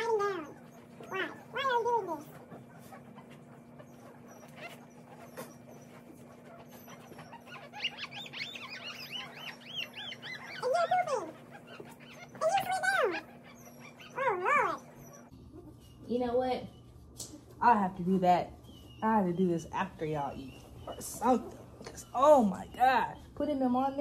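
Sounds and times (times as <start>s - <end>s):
puppies crying: 0.0s - 17.1s, 18.6s - 23.4s.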